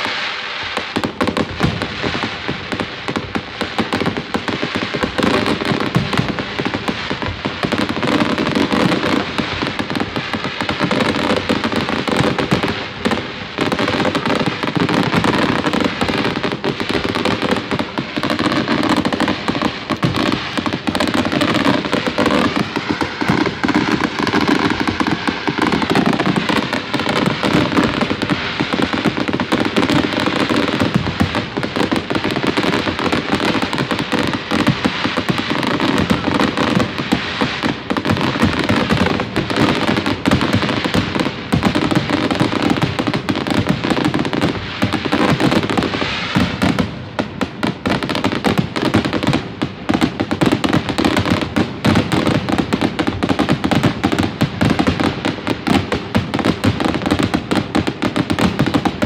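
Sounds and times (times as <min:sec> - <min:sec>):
fireworks bangs and crackling: 0:00.0 - 0:59.0.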